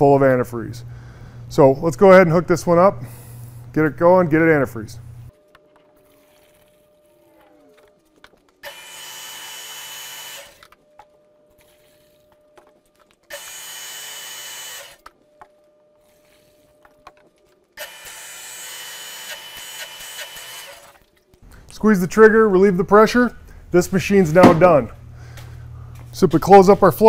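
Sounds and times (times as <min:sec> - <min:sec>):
pressure washer running: 0:08.6 - 0:10.7, 0:13.3 - 0:15.0, 0:17.8 - 0:21.0.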